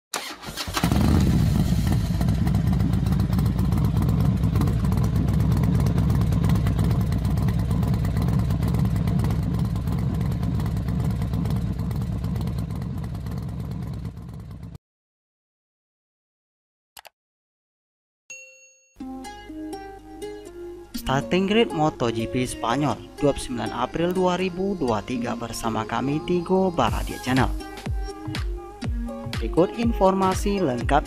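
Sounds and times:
racing motorcycle engines: 0:00.8 - 0:14.7.

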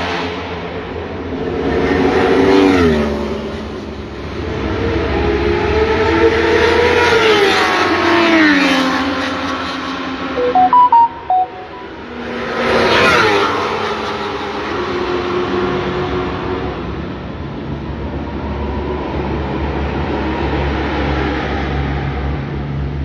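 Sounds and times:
electronic beeps: 0:10.4 - 0:12.0.

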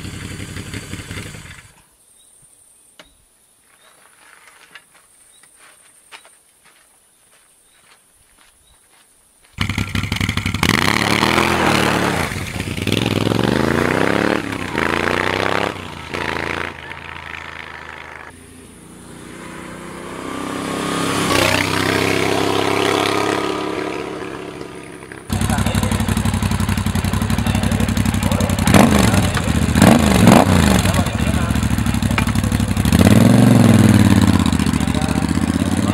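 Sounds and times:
motorcycle engine revving: 0:00.0 - 0:01.8, 0:09.6 - 0:35.9
motorcycle riding by: 0:09.6 - 0:35.9.

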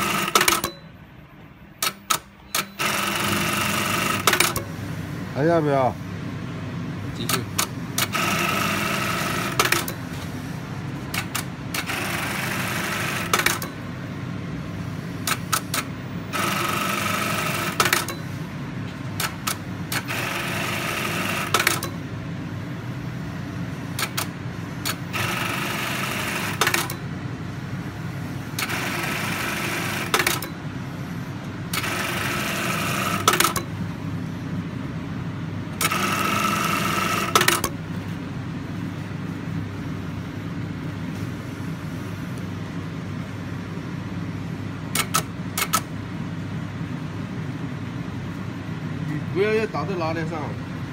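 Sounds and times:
sewing machine stitching: 0:02.6 - 0:04.6, 0:16.3 - 0:18.1, 0:19.2 - 0:21.9.

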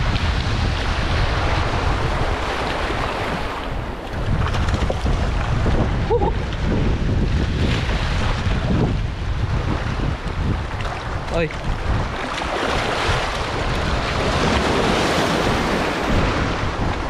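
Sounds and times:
wind buffeting microphone: 0:00.0 - 0:17.0
small waves washing over rocks: 0:10.7 - 0:17.0.

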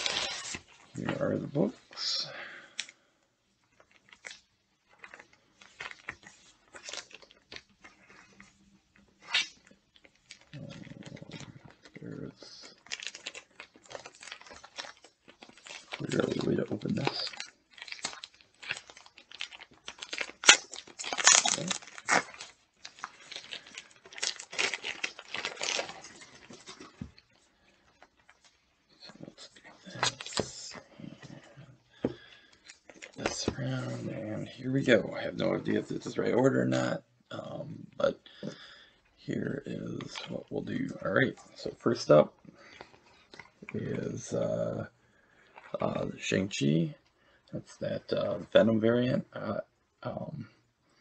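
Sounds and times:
plastic wrapping crinkling and tearing: 0:00.0 - 0:01.4, 0:03.6 - 0:36.5
paper and plastic rustling: 0:10.0 - 0:28.6.

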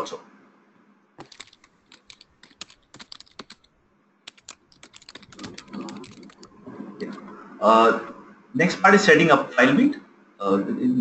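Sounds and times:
faint keyboard typing: 0:01.2 - 0:07.3.

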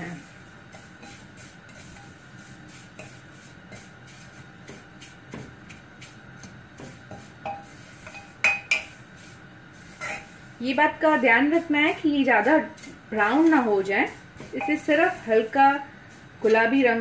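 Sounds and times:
spoon scraping saucepan: 0:00.2 - 0:10.6, 0:11.6 - 0:17.0
spoon clinking on pan: 0:06.4 - 0:09.0, 0:14.6 - 0:14.9.

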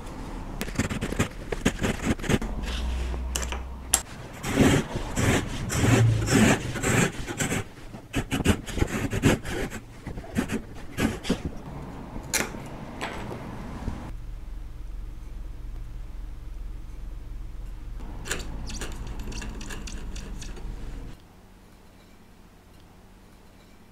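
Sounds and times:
handsaw rasping through wood: 0:04.0 - 0:11.5.

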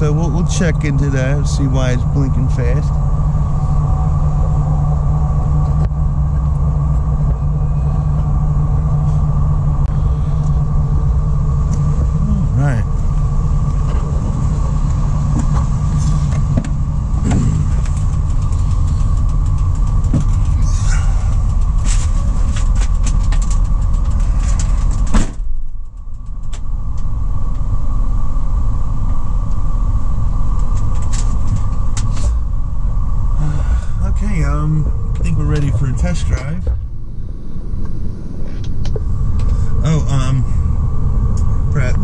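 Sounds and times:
engine idling: 0:00.0 - 0:42.0
scattered clicks: 0:17.2 - 0:27.7.

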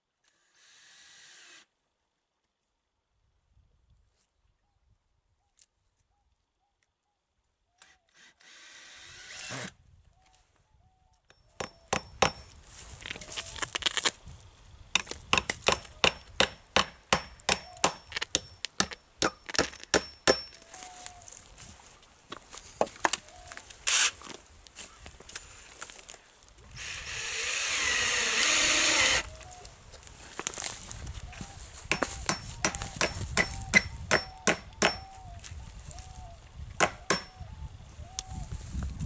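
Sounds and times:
hammer striking nails: 0:11.6 - 0:12.4, 0:15.0 - 0:20.6, 0:31.9 - 0:35.1, 0:36.8 - 0:37.3.

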